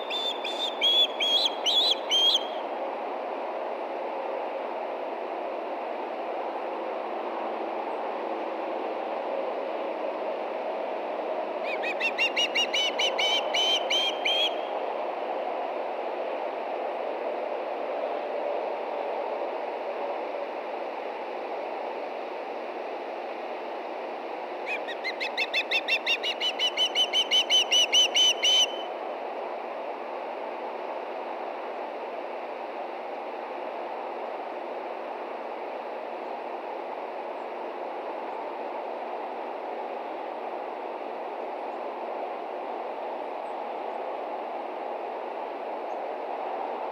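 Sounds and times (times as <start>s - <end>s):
osprey whistled chirps: 0.0s - 2.6s, 11.7s - 14.6s, 24.7s - 28.9s.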